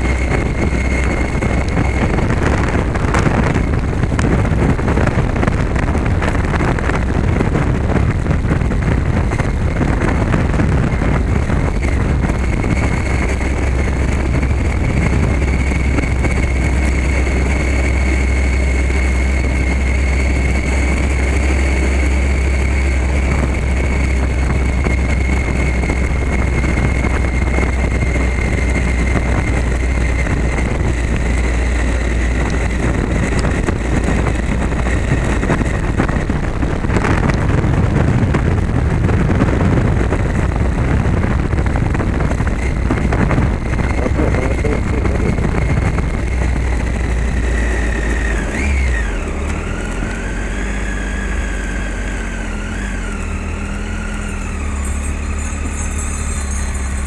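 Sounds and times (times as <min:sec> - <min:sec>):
motorcycle engine running: 0:00.0 - 0:57.0
tyres rumbling on cobbles: 0:00.0 - 0:57.0.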